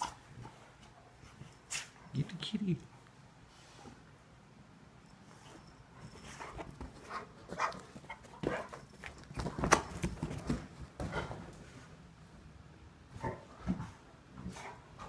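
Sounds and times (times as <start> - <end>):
paws thumping on sofa cushions: 6.0 - 11.6.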